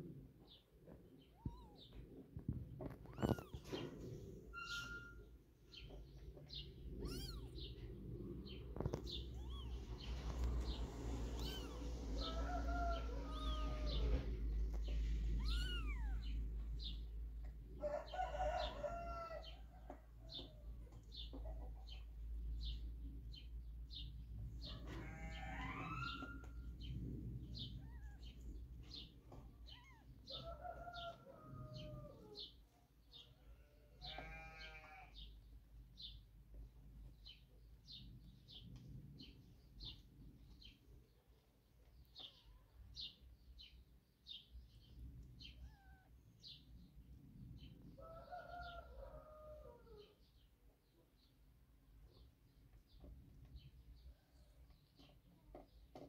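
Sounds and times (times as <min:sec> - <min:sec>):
kitten mewing: 0:03.0 - 0:03.6, 0:07.0 - 0:07.8, 0:08.8 - 0:10.4, 0:11.1 - 0:12.3, 0:13.3 - 0:14.3, 0:15.3 - 0:16.4
faint high chirp: 0:04.5 - 0:05.3.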